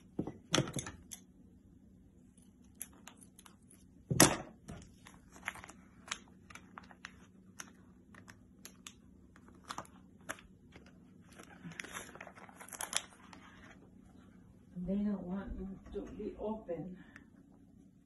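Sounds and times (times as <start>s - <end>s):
plastic packaging clicks and rustles: 4.8s - 13.8s.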